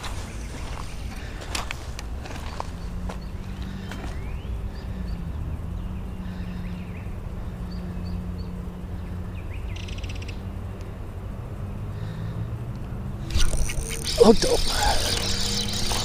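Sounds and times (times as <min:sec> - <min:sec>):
small birds chirping: 0:00.0 - 0:11.0, 0:13.2 - 0:16.0
brief buzzy rattle: 0:13.3 - 0:16.0.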